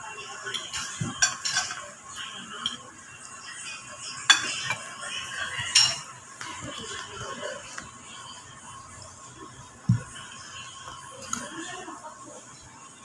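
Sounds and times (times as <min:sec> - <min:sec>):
cutlery clinking on ceramic plates: 0:00.5 - 0:02.0, 0:04.2 - 0:06.2.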